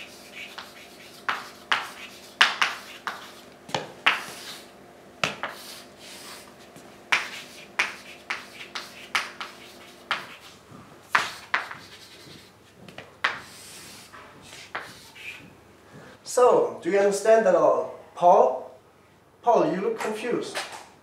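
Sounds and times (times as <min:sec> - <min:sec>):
chalk tapping on blackboard: 0:00.0 - 0:04.6, 0:05.2 - 0:06.4, 0:07.1 - 0:15.5
chalk scratching on blackboard: 0:00.0 - 0:06.5, 0:07.1 - 0:12.6, 0:13.2 - 0:15.5.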